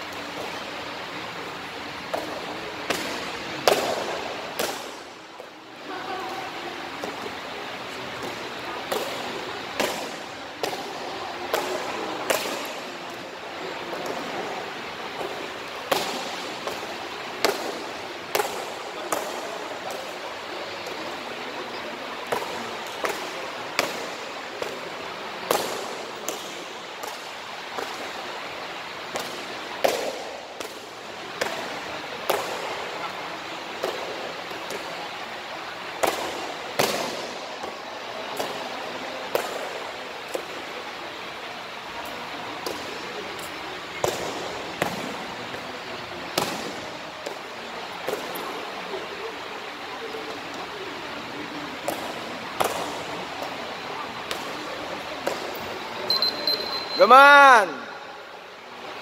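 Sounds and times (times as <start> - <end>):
foot slapping kick paddle: 15.9 - 16.8.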